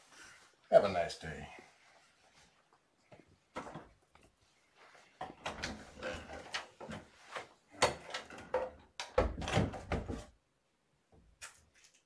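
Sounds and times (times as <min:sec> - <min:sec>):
irregular clicks and knocks: 0:05.2 - 0:10.3.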